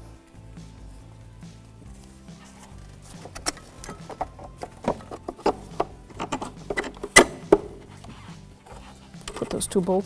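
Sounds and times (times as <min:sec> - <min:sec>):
metal bracket sliding: 0:02.5 - 0:09.6
clicks and knocks: 0:03.2 - 0:07.9.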